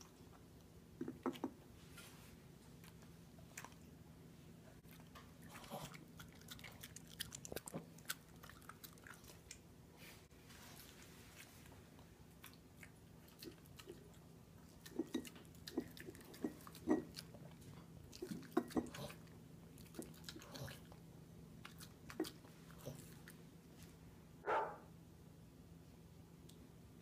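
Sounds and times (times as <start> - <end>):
dog chewing a bone: 12.4 - 21.0.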